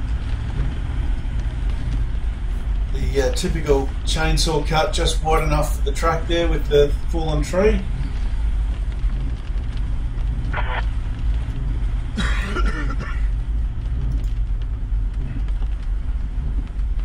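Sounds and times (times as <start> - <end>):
vehicle rumble inside cabin: 0.0 - 17.0
man coughing: 12.2 - 13.3.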